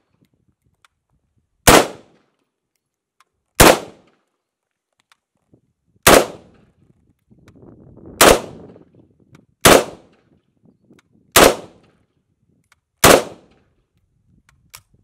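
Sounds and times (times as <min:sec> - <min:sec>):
rifle shots with echo: 0:01.6 - 0:02.2, 0:03.6 - 0:04.2, 0:06.0 - 0:06.6, 0:08.2 - 0:08.8, 0:09.6 - 0:10.2, 0:11.4 - 0:12.0, 0:13.0 - 0:13.6.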